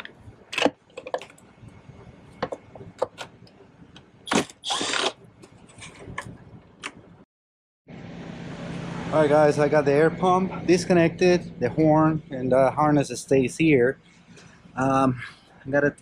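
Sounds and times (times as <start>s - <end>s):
parts clicking and rattling: 0.0s - 1.5s.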